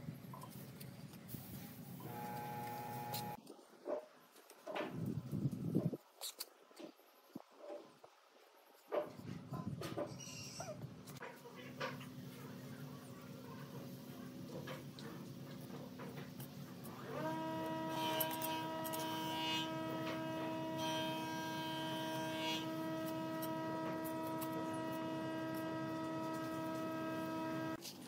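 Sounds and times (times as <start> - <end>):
steady hum: 16.9 - 27.8.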